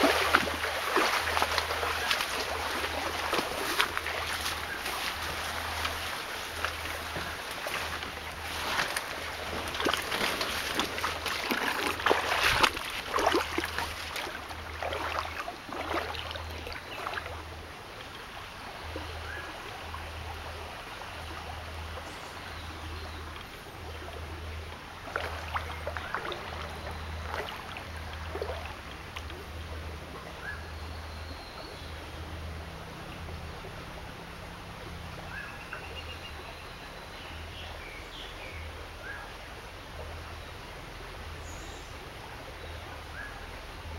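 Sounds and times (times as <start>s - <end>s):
splashing and rustling in water: 0.0s - 22.1s, 22.7s - 30.6s
stream trickling: 0.0s - 43.9s.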